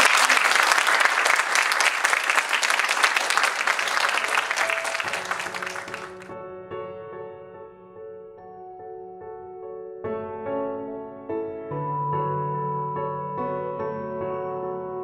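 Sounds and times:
audience applauding: 0.0 - 6.3
soft keyboard music: 4.4 - 15.0.

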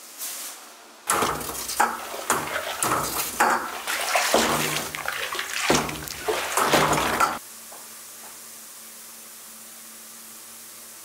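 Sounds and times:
liquid mash sloshing: 1.1 - 7.4.

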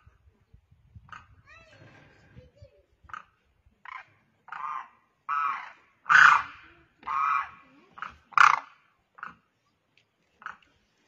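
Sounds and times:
crane calling: 3.9 - 9.4.

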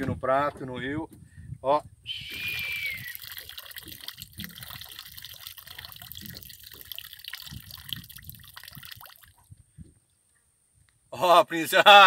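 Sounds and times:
liquid dribbling into water: 2.4 - 9.5.

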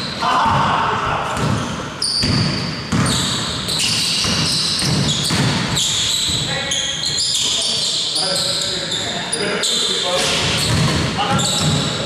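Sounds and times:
basketball bouncing on court: 0.4 - 6.5, 10.3 - 12.0
sneaker squeaks: 1.3 - 12.0.

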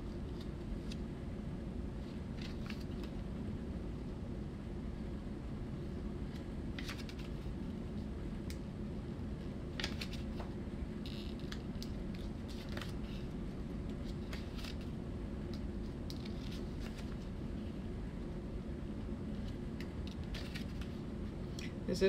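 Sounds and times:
low room hum: 0.0 - 22.0
pages flicking and rustling: 2.3 - 3.2, 6.3 - 7.6, 9.7 - 14.9, 15.5 - 17.3, 19.4 - 21.0.

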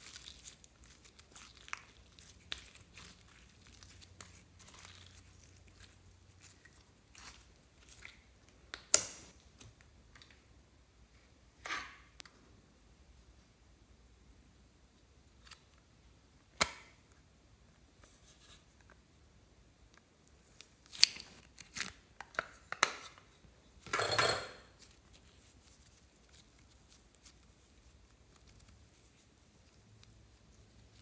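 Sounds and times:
clicks and snaps: 8.7 - 10.4
clay rustling scrape: 18.0 - 18.8.

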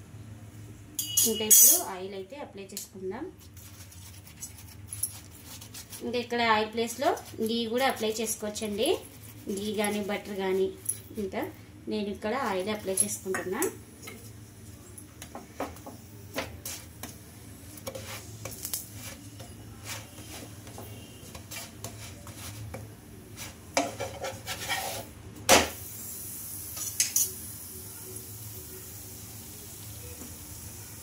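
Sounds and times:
oil sizzling: 12.4 - 31.0
spatula scraping a pan: 16.6 - 25.2.

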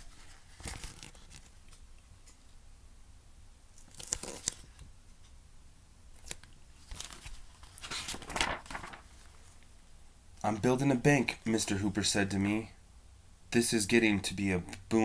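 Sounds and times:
book pages rustling: 0.0 - 2.4, 3.8 - 4.8, 6.2 - 9.7.

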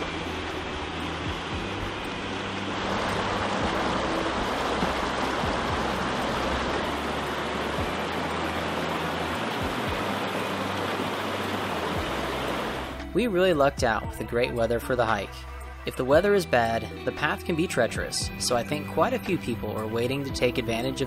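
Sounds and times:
stream rushing over boulders: 0.0 - 13.2.

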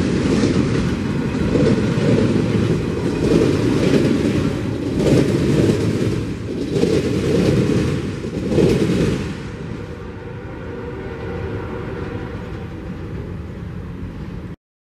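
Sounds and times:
wheels clacking over rail joints: 0.0 - 10.0
train wheels rumbling: 0.0 - 14.6.

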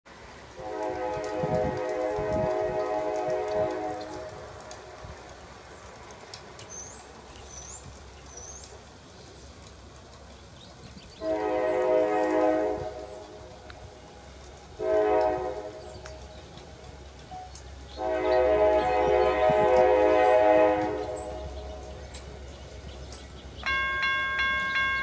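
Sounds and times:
low train rumble: 0.1 - 25.0
train horn blasts: 0.5 - 5.0, 11.2 - 14.0, 14.6 - 16.8, 17.9 - 22.1.

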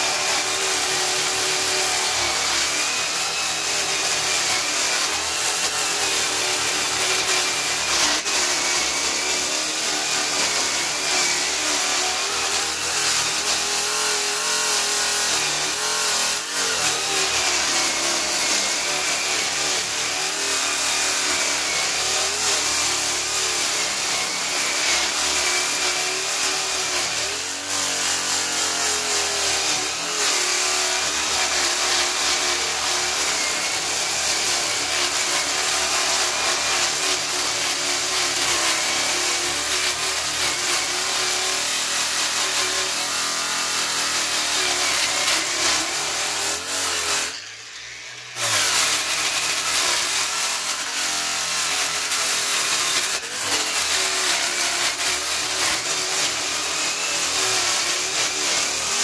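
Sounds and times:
sanding disc rasping wood: 0.0 - 59.0
electric drill motor whine: 28.1 - 58.9.

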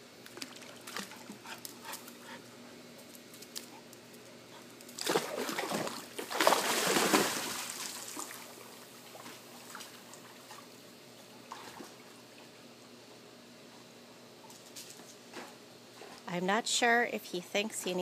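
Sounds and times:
water sloshing and lapping: 0.2 - 2.0, 5.0 - 10.8, 11.4 - 12.6
dog splashing into pool: 5.0 - 10.0.

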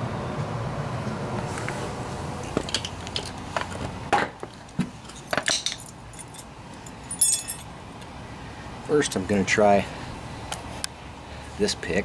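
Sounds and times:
passing traffic rumble: 0.0 - 12.0
metal hand picks clinking: 5.1 - 7.7.

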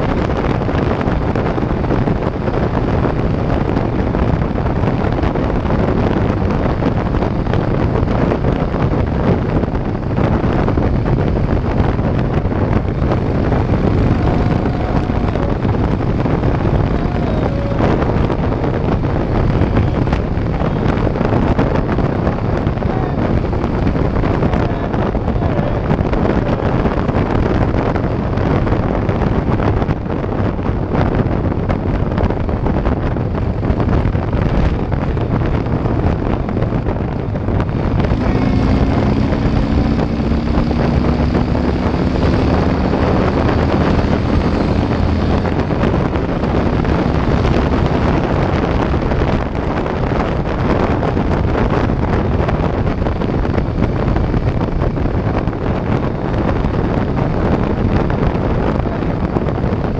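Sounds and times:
heavy wind roar: 0.0 - 59.9
motorcycle engine drone: 0.0 - 59.9
pair of low falling tones: 1.5 - 29.4.

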